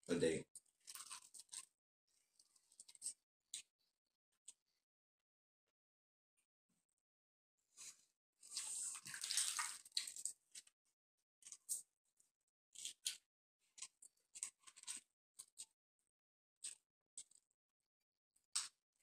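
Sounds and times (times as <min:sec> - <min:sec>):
chewing: 0:00.9 - 0:01.6.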